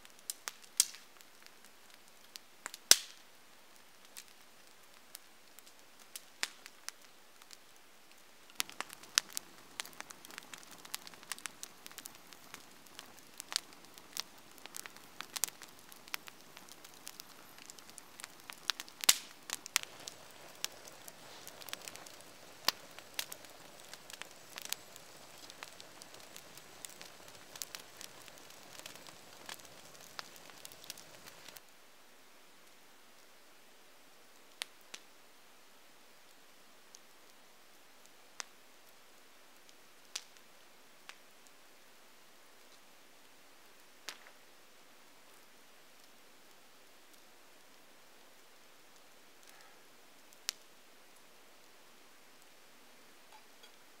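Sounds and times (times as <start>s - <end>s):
campfire crackling and popping: 0.0s - 31.8s, 34.2s - 35.2s, 36.2s - 54.0s
soft rush of flame: 0.1s - 31.7s.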